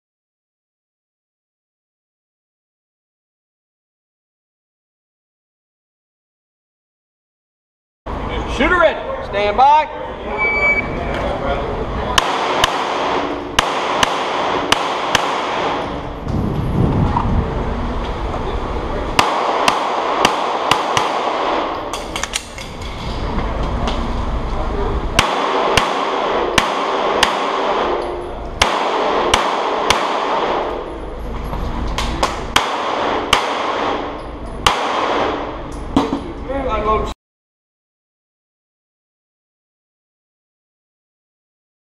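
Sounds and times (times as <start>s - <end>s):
pistol shots indoors: 12.1s - 16.2s, 19.2s - 23.0s, 25.2s - 31.1s, 32.0s - 36.1s.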